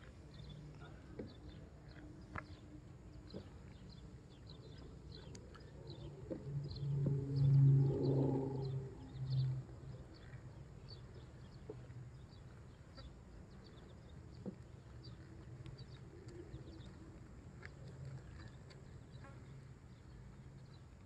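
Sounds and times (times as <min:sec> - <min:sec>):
low animal call: 0:05.6 - 0:10.3.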